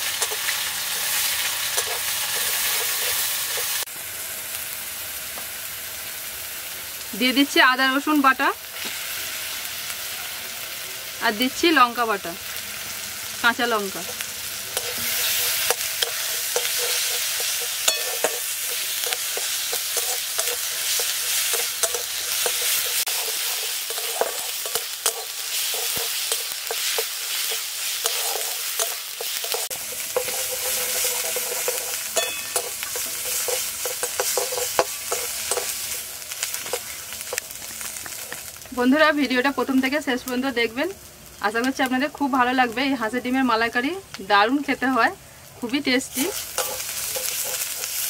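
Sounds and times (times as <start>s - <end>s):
spatula scraping a metal wok: 0.0s - 3.8s, 14.0s - 38.4s, 46.1s - 48.0s
food sizzling in hot oil: 0.0s - 48.0s.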